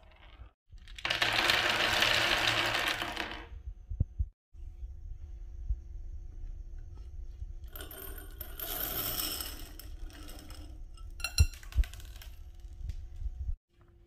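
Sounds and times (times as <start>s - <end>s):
low steady hum: 3.6s - 14.0s
marbles clattering: 11.6s - 12.7s.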